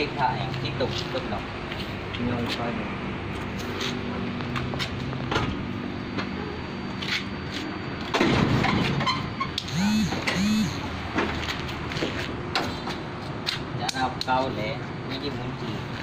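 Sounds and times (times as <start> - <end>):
door squeaks: 8.5 - 9.7.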